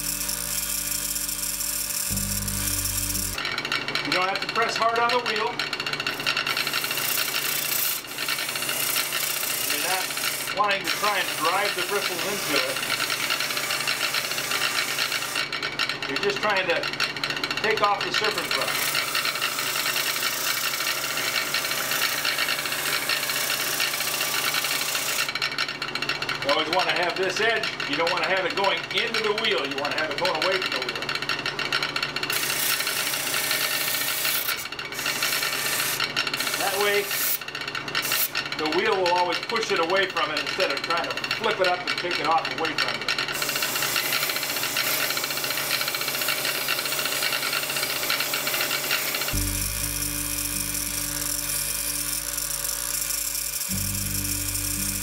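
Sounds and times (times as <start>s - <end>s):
electric motor hum: 0.0s - 3.6s, 49.3s - 55.0s.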